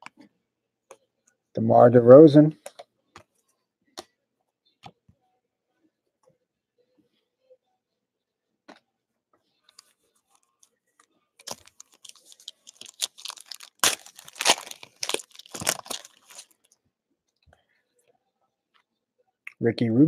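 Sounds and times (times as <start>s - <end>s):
wrapper tearing and crinkling: 11.4s - 16.6s.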